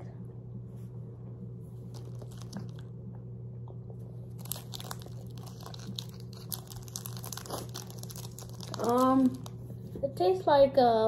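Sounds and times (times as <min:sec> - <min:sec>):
plastic wrapper crinkling: 0:01.8 - 0:02.9, 0:04.2 - 0:09.7.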